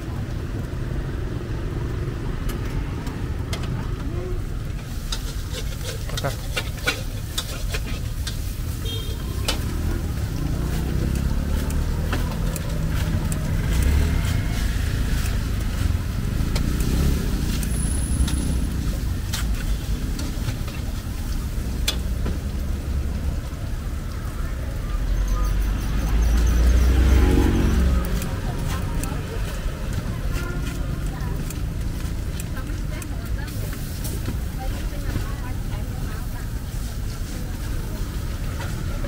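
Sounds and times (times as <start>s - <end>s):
vehicle engines passing: 0.0s - 39.0s
sharp clicks and knocks: 9.4s - 21.0s, 21.8s - 22.5s.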